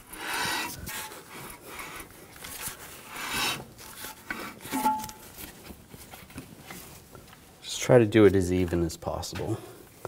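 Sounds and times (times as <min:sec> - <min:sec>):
metal rasping and scraping: 0:03.3 - 0:05.3.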